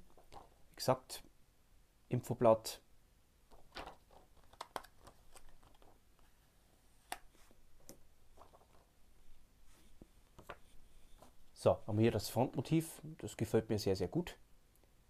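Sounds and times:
paper rustling: 3.5s - 6.4s, 7.3s - 11.4s.

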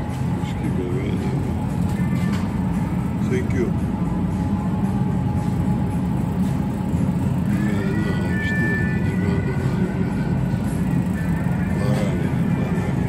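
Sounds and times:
faint background music: 0.0s - 13.0s
refrigerator hum and rumble: 0.0s - 13.0s.

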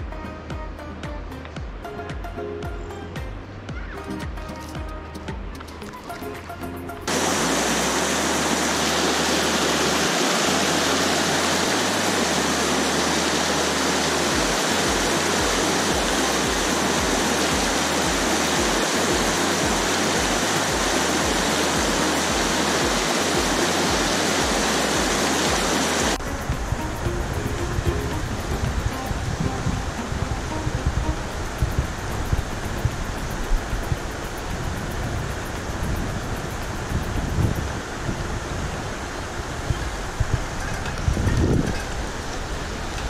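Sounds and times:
bass music beat: 0.0s - 7.2s, 14.3s - 37.7s
river water rushing: 3.4s - 43.0s.

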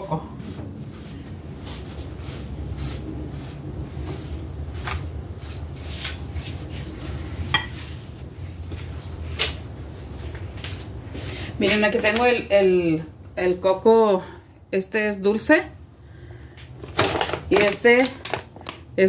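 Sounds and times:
steady low hum: 0.0s - 16.8s
kitchen items knocking and clicking: 16.8s - 18.9s.

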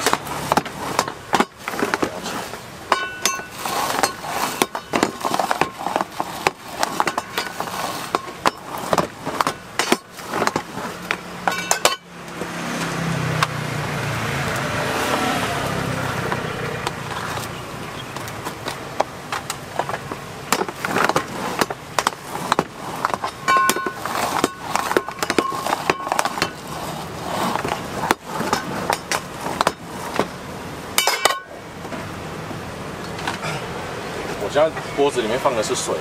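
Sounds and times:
steady low rumbling noise: 0.0s - 36.0s
roller crunching puffed rice: 3.4s - 11.4s, 18.2s - 30.3s.

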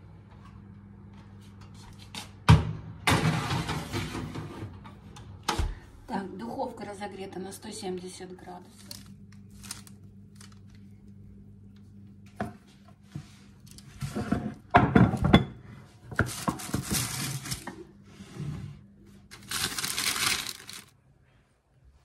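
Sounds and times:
baking paper rustling: 8.6s - 14.7s, 16.1s - 17.8s, 19.1s - 21.0s.

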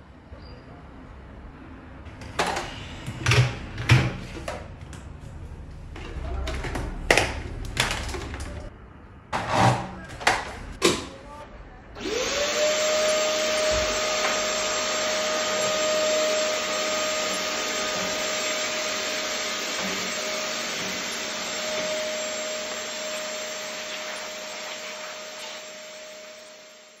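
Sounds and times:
vacuum cleaner running: 12.0s - 27.0s.

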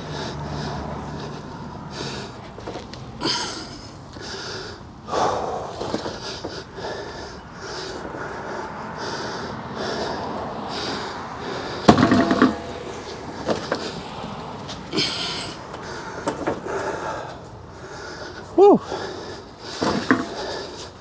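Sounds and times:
hand truck rolling on concrete: 0.0s - 21.0s
loud metallic clank and rattle: 11.8s - 13.9s.

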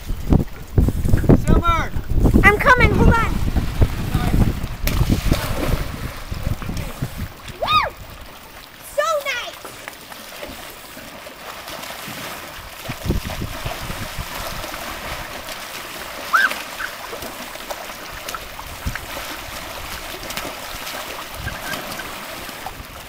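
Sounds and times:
water splashing and sloshing: 0.0s - 23.0s
high-pitched cry: 7.6s - 8.0s, 16.3s - 16.6s.

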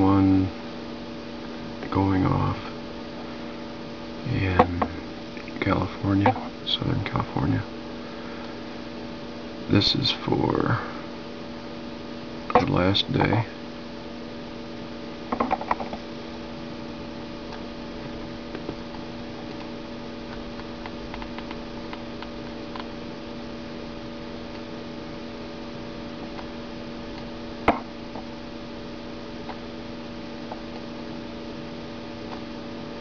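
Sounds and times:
steady electrical hum: 0.0s - 33.0s.

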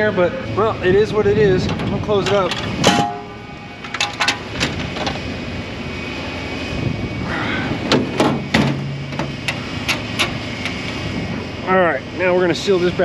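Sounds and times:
steady low rumble: 0.0s - 13.0s
metal lid clanking shut: 1.7s - 5.2s, 7.9s - 10.4s.

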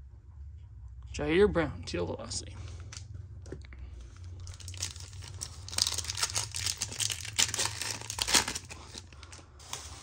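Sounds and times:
foil wrapper crinkling and tearing: 4.4s - 10.0s.

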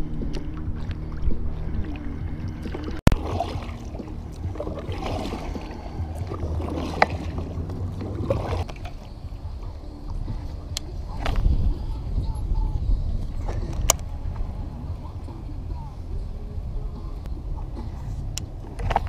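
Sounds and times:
steady low rumble: 0.0s - 19.0s
paddle splashing in water: 0.2s - 11.7s.

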